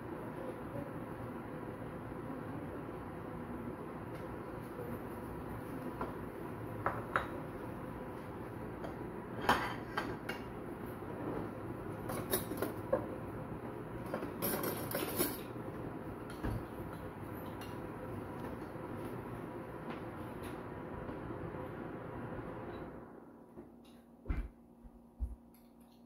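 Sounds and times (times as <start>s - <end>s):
utensils clinking on pan and bowl: 14.1s - 15.5s.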